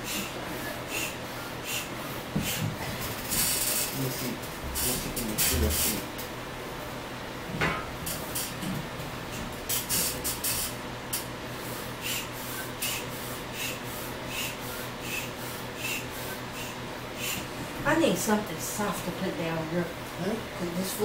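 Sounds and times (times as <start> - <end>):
foot pump puffing air: 0.0 - 4.0, 4.8 - 6.0, 9.7 - 10.8, 11.5 - 17.6.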